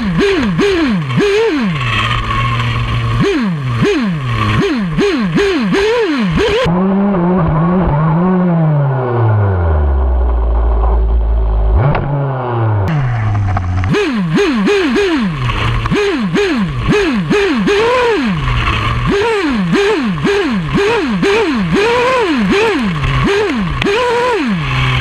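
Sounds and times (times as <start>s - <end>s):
model car nitro engine revving: 0.0s - 7.3s, 12.9s - 25.0s.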